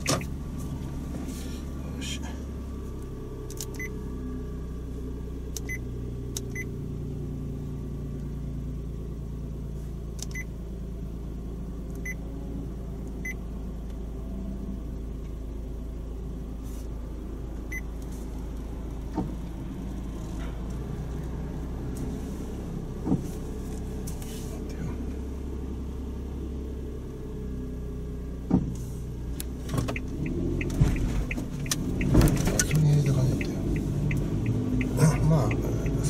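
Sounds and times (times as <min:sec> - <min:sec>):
car engine idling: 0:00.0 - 0:36.0
truck passing: 0:30.0 - 0:36.0.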